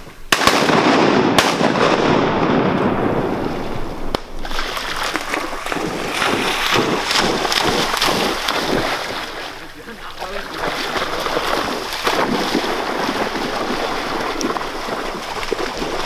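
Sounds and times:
shotgun shots: 0:00.3 - 0:04.5
uneven choppy noise: 0:03.4 - 0:16.0.

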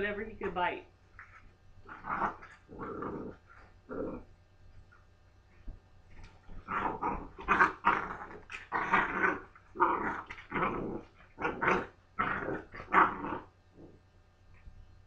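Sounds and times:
puppies growling: 0:01.2 - 0:04.3, 0:06.5 - 0:14.0.

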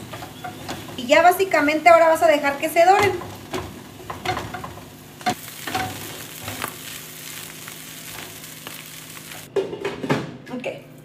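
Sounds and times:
spoon scraping a pan: 0:00.0 - 0:01.0, 0:02.9 - 0:07.4
fish sizzling in a pan: 0:03.4 - 0:09.5.

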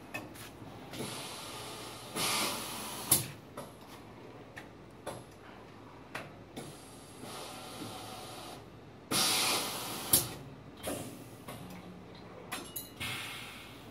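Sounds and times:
machine rushing hiss: 0:01.0 - 0:03.3, 0:06.9 - 0:10.4.

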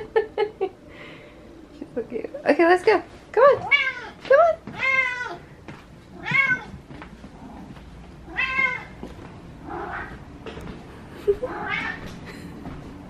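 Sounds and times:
cat meowing: 0:03.6 - 0:05.4, 0:06.2 - 0:06.7, 0:08.3 - 0:09.0, 0:11.5 - 0:12.0.

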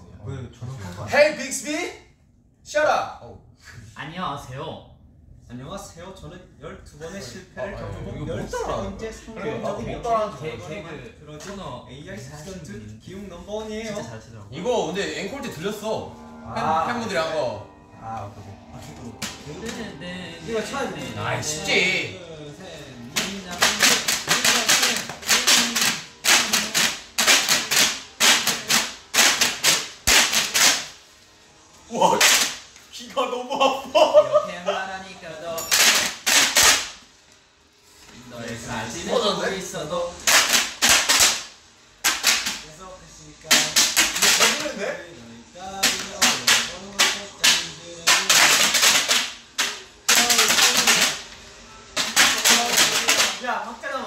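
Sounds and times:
paper hand clappers clacking: 0:23.1 - 0:31.0, 0:32.2 - 0:32.7, 0:35.6 - 0:37.0, 0:40.2 - 0:42.7, 0:43.5 - 0:44.8, 0:45.8 - 0:51.3, 0:52.0 - 0:53.4.

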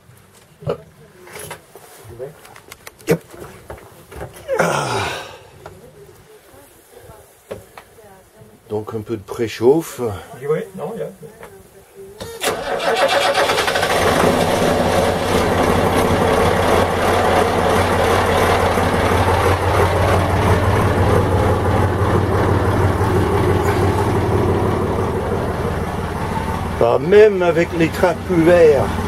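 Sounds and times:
diesel engine starting and idling: 0:12.4 - 0:29.0.

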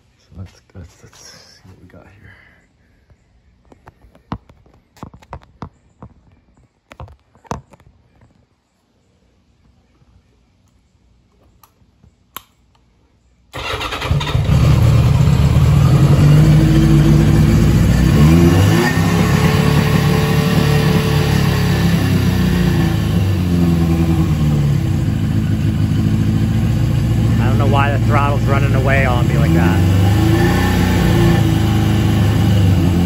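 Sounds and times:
motorcycle engine revving and idling: 0:13.6 - 0:33.0.

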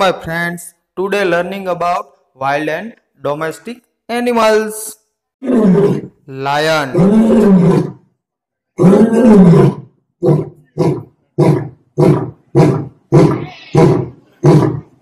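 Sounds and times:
lion roaring: 0:05.4 - 0:06.1, 0:06.8 - 0:08.1, 0:08.8 - 0:15.0.

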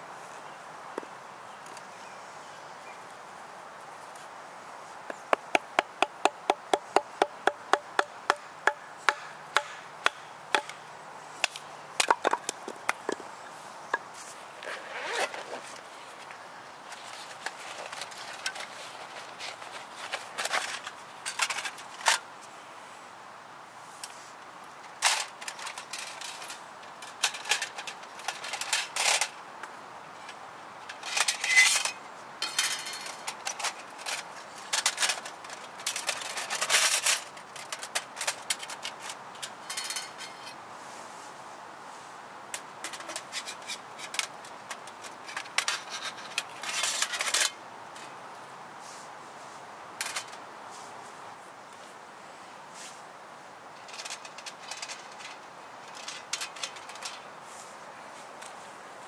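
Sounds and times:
camping gear knocking and clattering: 0:05.1 - 0:15.7, 0:16.8 - 0:22.2, 0:24.9 - 0:40.6, 0:42.5 - 0:48.1.

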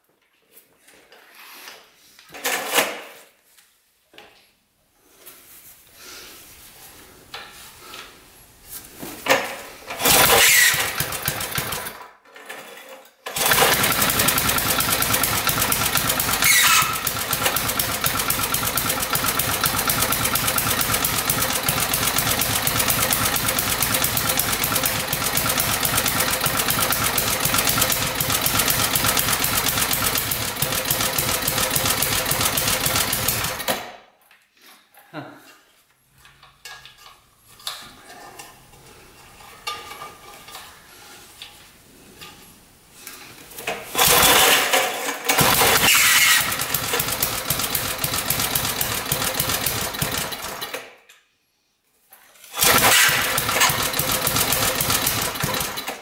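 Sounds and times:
loud rattle: 0:10.0 - 0:12.0, 0:13.3 - 0:33.8, 0:43.6 - 0:50.8, 0:52.4 - 0:56.0
small engine running steadily: 0:13.4 - 0:33.6, 0:45.4 - 0:50.7, 0:52.6 - 0:56.0.

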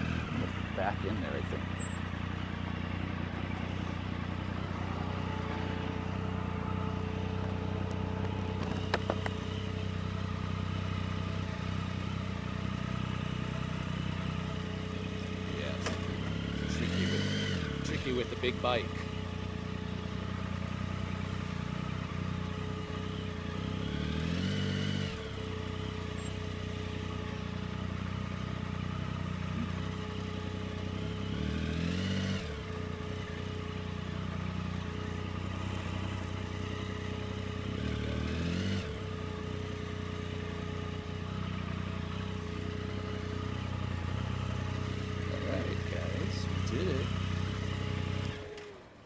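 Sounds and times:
motorcycle engine idling: 0:00.0 - 0:49.0.

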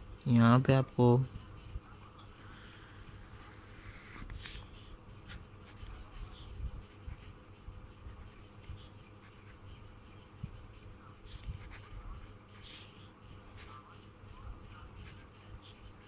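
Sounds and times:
pen nib scratching on paper: 0:02.6 - 0:14.0, 0:14.6 - 0:16.0.

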